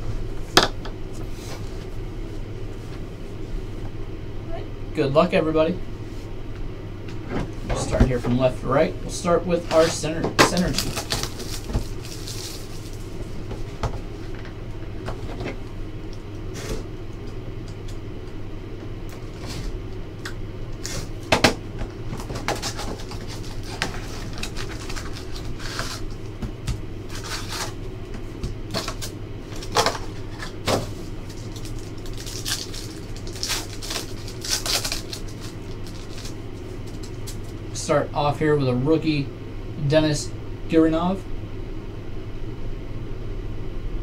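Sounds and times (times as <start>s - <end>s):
steady low hum: 0.0s - 44.0s
foil packs crinkling and tearing: 9.7s - 13.4s, 22.1s - 26.3s, 27.0s - 27.8s, 28.7s - 37.6s.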